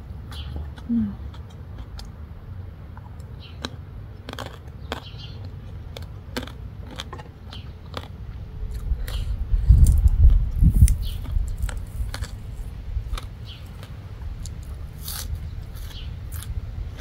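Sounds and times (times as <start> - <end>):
person chewing crunchy food: 0.0 - 17.0
low rumble: 7.8 - 17.0.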